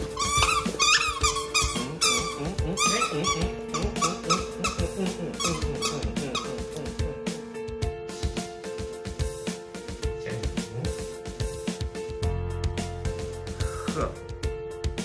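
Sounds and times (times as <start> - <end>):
puppy growling and yipping: 0.0 - 6.8
background music: 0.0 - 15.0.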